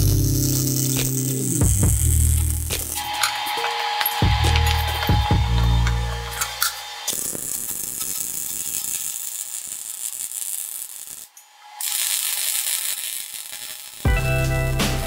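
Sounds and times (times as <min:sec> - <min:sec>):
welding arc crackling: 0:00.0 - 0:15.0.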